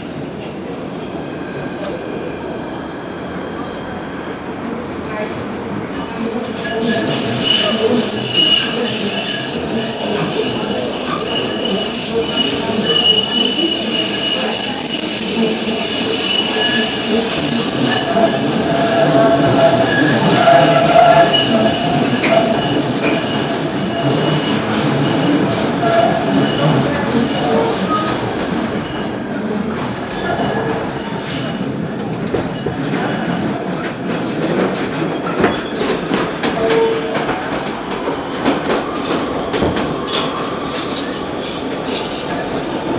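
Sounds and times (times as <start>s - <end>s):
rumble of wheels on rail: 0.0s - 42.9s
shrill wheel squeal: 6.0s - 29.4s, 32.6s - 34.3s.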